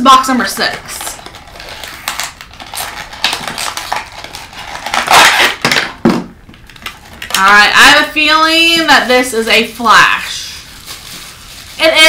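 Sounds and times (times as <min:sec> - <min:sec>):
packaging crinkling and rustling: 0:00.4 - 0:08.0, 0:08.6 - 0:12.0.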